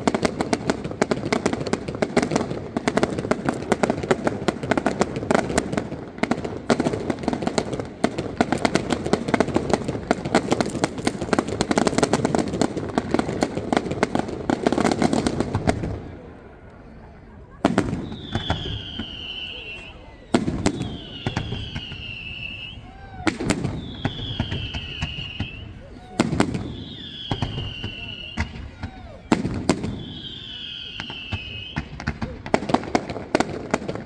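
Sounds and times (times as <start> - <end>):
fireworks crackling and banging: 0.0 - 34.0
whistle sliding down in pitch: 18.0 - 23.0, 23.8 - 25.8, 26.7 - 28.6.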